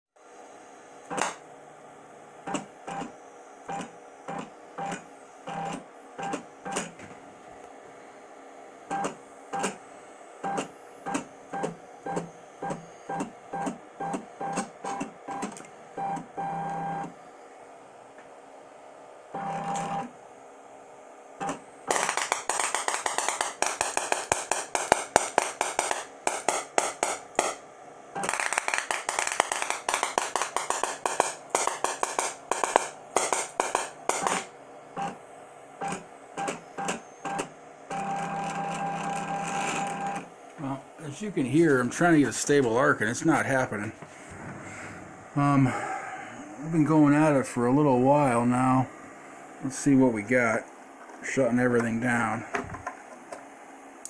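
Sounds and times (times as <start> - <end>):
electric sparks snapping and crackling: 1.1 - 1.4, 21.4 - 27.6, 28.2 - 34.5
spark buzz: 21.4 - 35.2.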